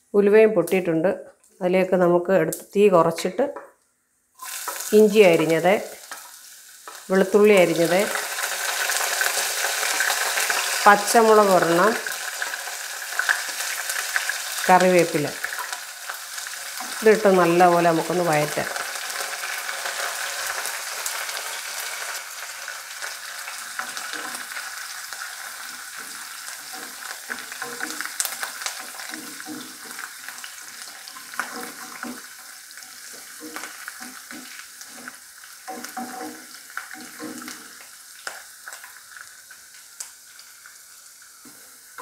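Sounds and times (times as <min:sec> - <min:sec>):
food sizzling in hot oil: 0:04.4 - 0:42.0
wooden spatula scraping a pot: 0:25.6 - 0:37.8.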